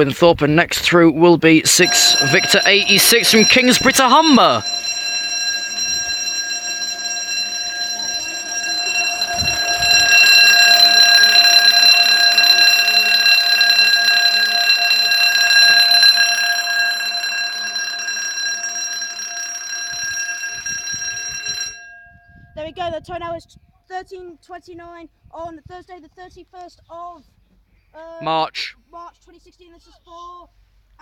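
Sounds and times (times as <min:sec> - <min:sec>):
level crossing alarm tone: 0:01.6 - 0:22.4.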